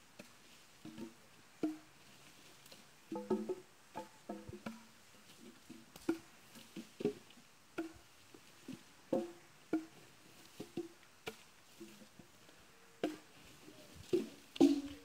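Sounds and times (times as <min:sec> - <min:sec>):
axe chopping wood: 0:14.1 - 0:15.0.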